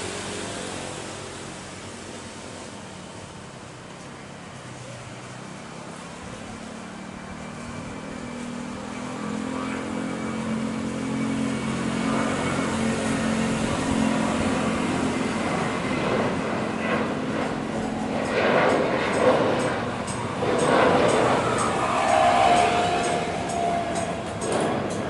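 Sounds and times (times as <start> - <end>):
jet engines roaring: 0.0 - 25.0.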